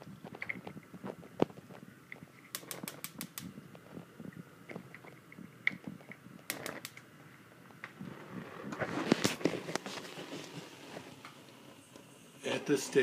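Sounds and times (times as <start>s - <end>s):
gas stove igniter clicking: 2.5s - 3.5s, 6.4s - 7.1s.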